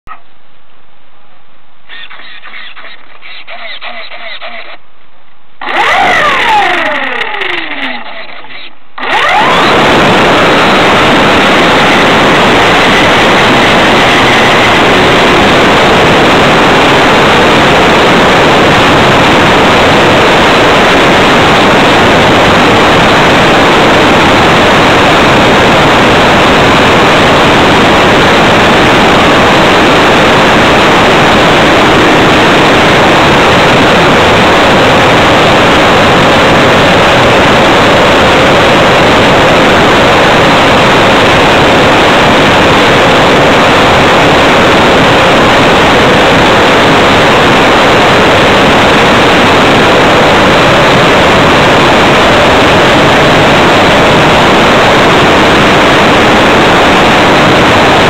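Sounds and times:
falling tone: 5.6 - 16.6
model plane motor and propeller: 5.6 - 20.2.

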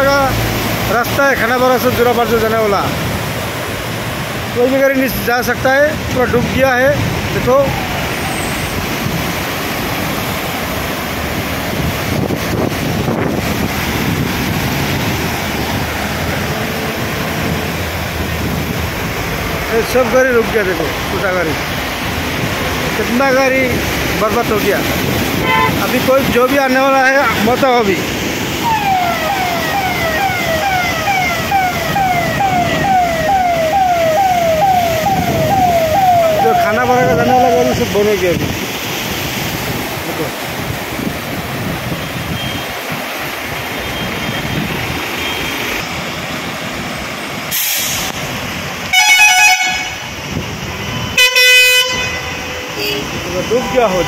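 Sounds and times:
floodwater rushing across road: 0.0 - 54.0
wind buffeting microphone: 11.2 - 16.5, 34.4 - 43.0
electronic siren falling sweeps: 28.6 - 37.7.

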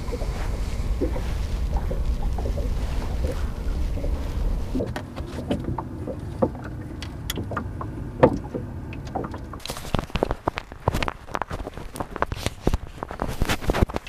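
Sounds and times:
low rumble: 0.0 - 9.7
fishing gear knocks and clicks: 4.8 - 14.0.

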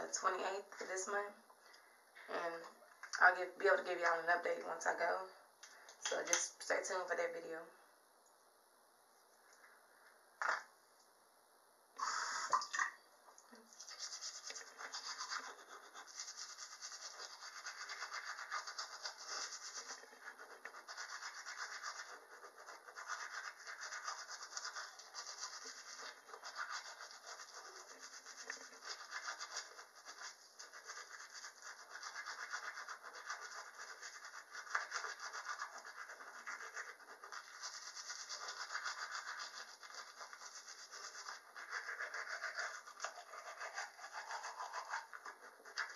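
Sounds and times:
toothbrush scrubbing teeth: 12.0 - 45.9.

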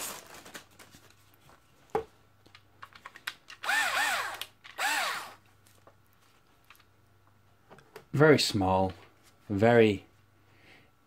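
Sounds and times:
cordless drill motor spinning: 3.6 - 5.4.

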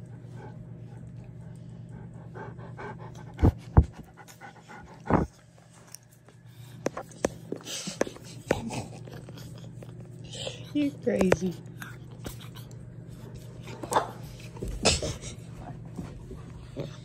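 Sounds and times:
dog panting: 0.0 - 5.5.

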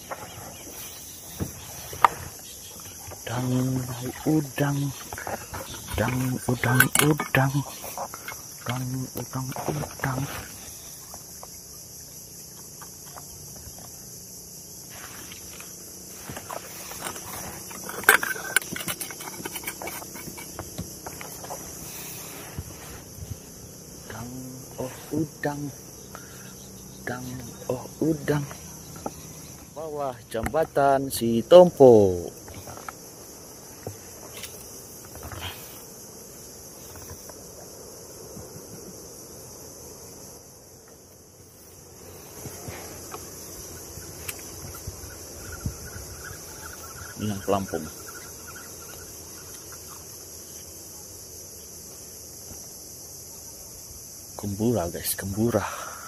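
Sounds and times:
insect chorus: 0.0 - 56.0
gear clicks and knocks: 16.4 - 21.6.

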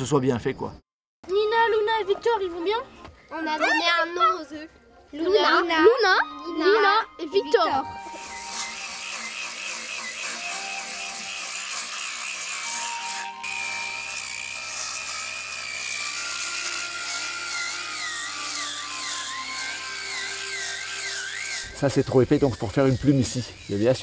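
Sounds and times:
power tool whining on wood: 7.9 - 24.0.

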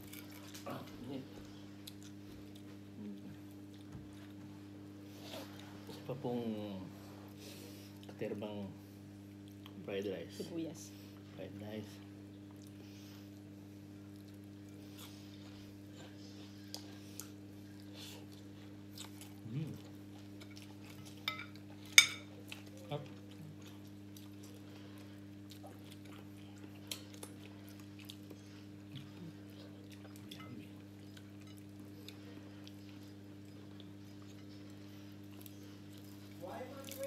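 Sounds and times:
chewing: 0.0 - 4.4, 12.3 - 37.0
steady low hum: 0.0 - 37.0.

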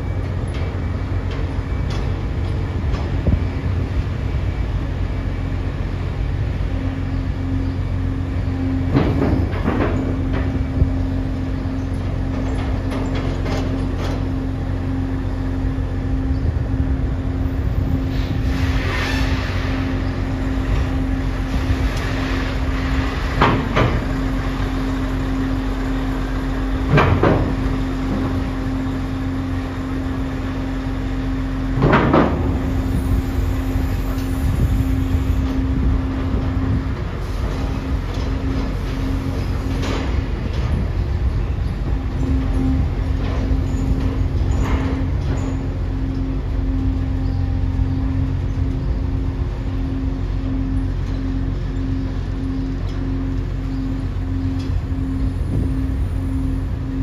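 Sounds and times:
ferry machinery drone: 0.0 - 57.0
trucks clanking over metal ramp: 8.6 - 15.0, 17.8 - 30.5, 31.5 - 48.8.

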